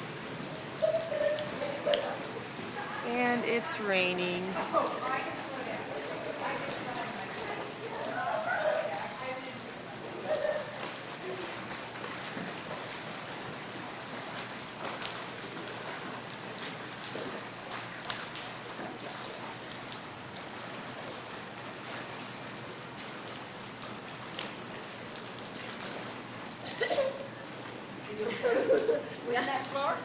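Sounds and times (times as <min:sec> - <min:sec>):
rain falling on pool and deck: 0:00.0 - 0:30.0.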